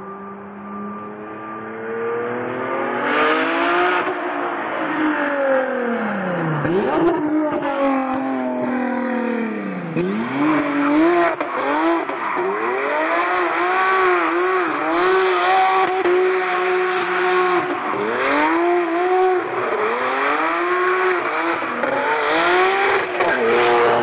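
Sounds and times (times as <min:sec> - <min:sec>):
turbo car engine revving hard: 0:06.6 - 0:08.6, 0:09.2 - 0:24.0.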